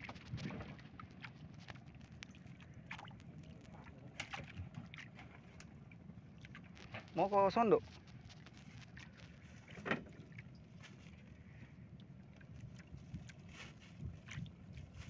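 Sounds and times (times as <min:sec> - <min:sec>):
water and wind wash: 0:00.0 - 0:15.0
boat knock: 0:09.6 - 0:10.4.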